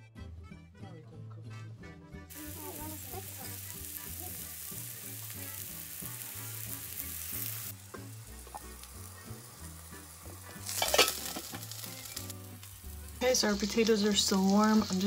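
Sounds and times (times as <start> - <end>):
cutlets sizzling in oil: 2.3 - 15.0
fork turning food in pan: 2.4 - 12.9.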